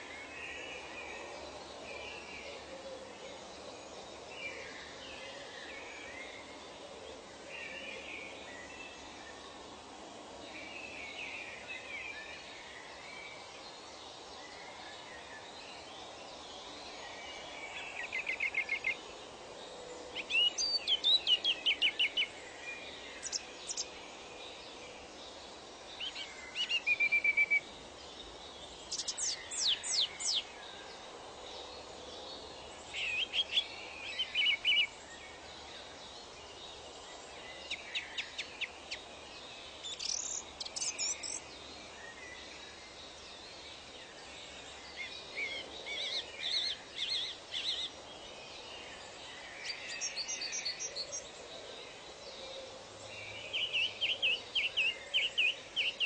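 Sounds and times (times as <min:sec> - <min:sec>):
steady background hiss: 0:00.0 - 0:56.0
birds chirping and trilling: 0:20.1 - 0:24.8, 0:25.4 - 0:31.8, 0:32.4 - 0:56.0.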